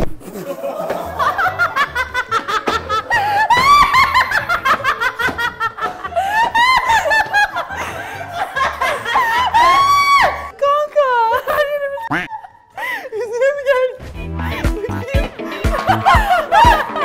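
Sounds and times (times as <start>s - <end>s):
women laughing: 0.2s - 13.9s, 14.5s - 17.0s
background music with steady beat: 0.6s - 10.5s, 14.0s - 17.0s.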